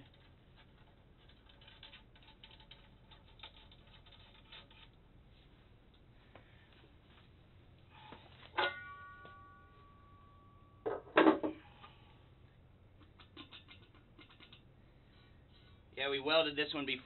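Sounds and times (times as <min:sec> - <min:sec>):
metal clatter: 0:00.0 - 0:05.0, 0:13.0 - 0:14.7
metallic clank: 0:07.9 - 0:12.0.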